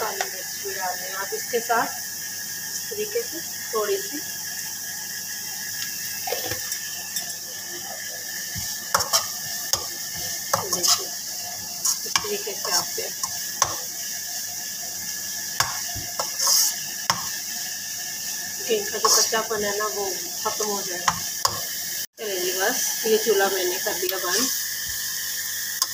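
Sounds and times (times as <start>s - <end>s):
vegetables sizzling: 0.0s - 25.9s
metal spatula scraping a pan: 8.5s - 14.1s, 15.6s - 17.4s, 18.8s - 19.6s.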